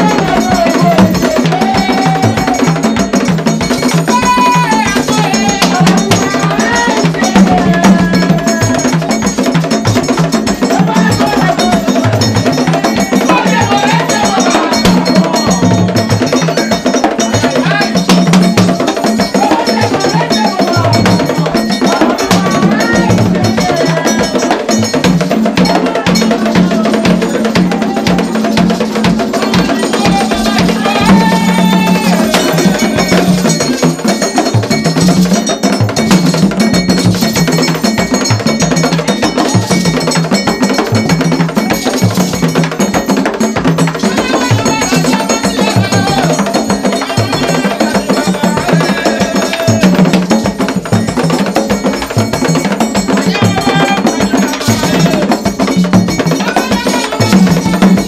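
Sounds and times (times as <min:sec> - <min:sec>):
drums: 0:00.0 - 0:58.0
metal bell struck: 0:00.0 - 0:58.0
voices singing together: 0:00.0 - 0:58.0.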